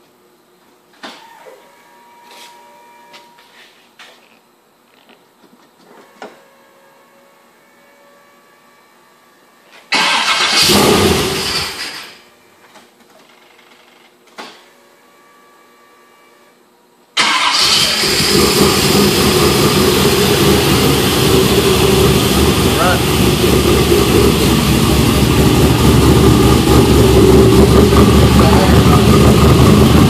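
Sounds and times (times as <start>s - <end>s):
engine cranking and starting: 9.9s - 12.2s, 17.2s - 20.1s
engine running loudly: 17.5s - 30.0s.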